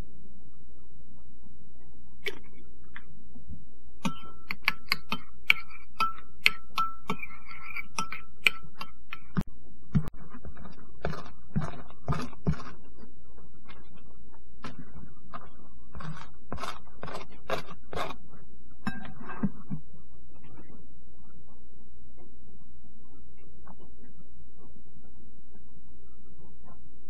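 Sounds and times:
steady low hum: 0:00.0 - 0:27.0
metal spoon stirring in bowl: 0:04.0 - 0:09.4, 0:10.0 - 0:12.8, 0:15.4 - 0:18.2.

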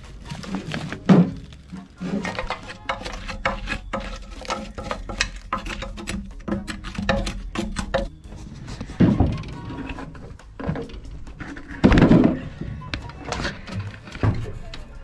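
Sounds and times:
metal stove parts knocking: 0:02.2 - 0:08.3.

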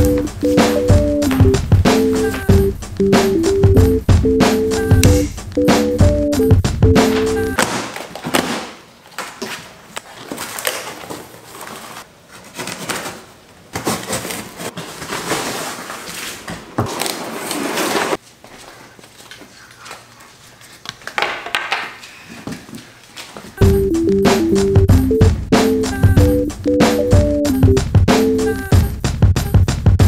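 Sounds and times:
plastic wrap crinkling: 0:09.0 - 0:21.2
cardboard box scraping and rustling: 0:13.8 - 0:18.2.

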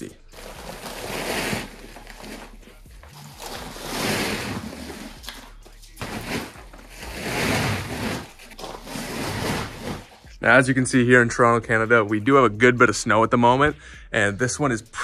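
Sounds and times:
fabric car cover rustling: 0:00.3 - 0:05.4, 0:06.0 - 0:10.2.

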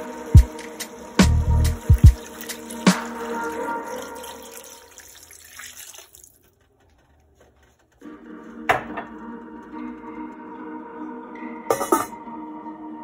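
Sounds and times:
soft background music: 0:00.0 - 0:05.0, 0:08.0 - 0:13.0
water pouring into a pot: 0:00.0 - 0:06.5.

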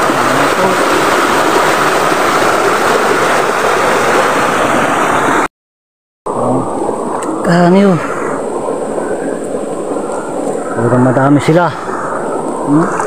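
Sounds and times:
stream rushing over rocks: 0:00.0 - 0:05.5.

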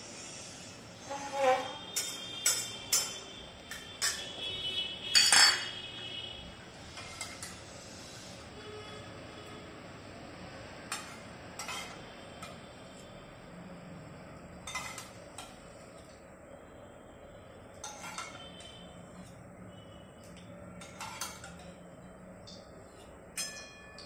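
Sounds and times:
metal spoon clinking on pots: 0:01.9 - 0:04.5, 0:05.1 - 0:05.8, 0:10.9 - 0:12.6, 0:14.6 - 0:15.6, 0:17.7 - 0:19.4, 0:20.2 - 0:24.0.

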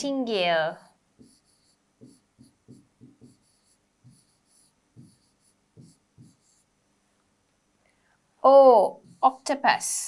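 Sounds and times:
pen writing on whiteboard: 0:01.2 - 0:06.7, 0:09.0 - 0:09.5.

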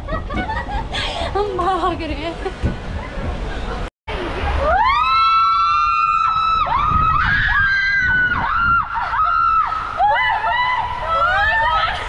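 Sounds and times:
people screaming: 0:04.4 - 0:12.0.

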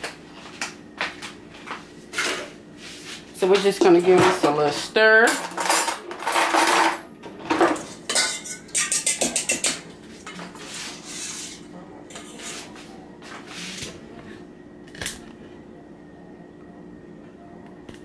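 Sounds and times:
utensil clinking against bowl: 0:07.6 - 0:10.5.

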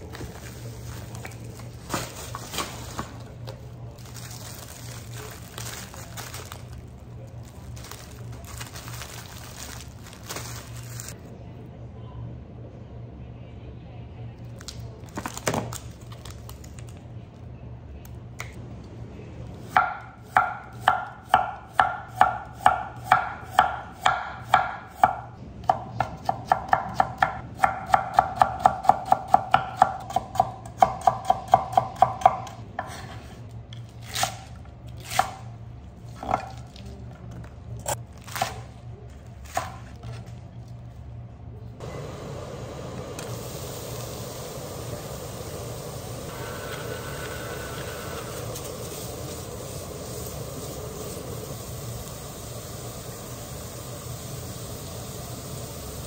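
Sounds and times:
low steady hum: 0:00.0 - 0:28.8.

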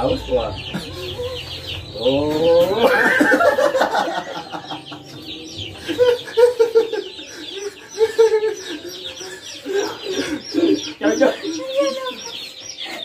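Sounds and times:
group of people laughing: 0:02.4 - 0:13.0.

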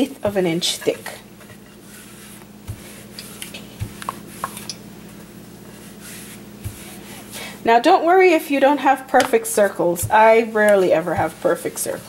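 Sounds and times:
faint steady hum: 0:00.0 - 0:12.0
soft rubbing of dough on board: 0:00.8 - 0:07.5, 0:09.5 - 0:12.0
low thumps of dough: 0:01.4 - 0:07.4, 0:09.7 - 0:12.0.

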